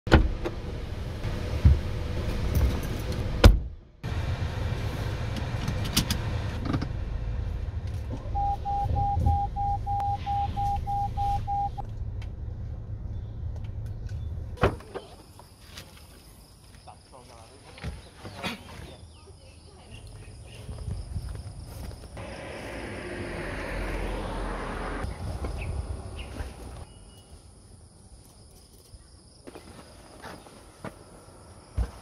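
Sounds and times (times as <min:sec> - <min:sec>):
dashboard warning chime beeps: 0:08.3 - 0:11.8.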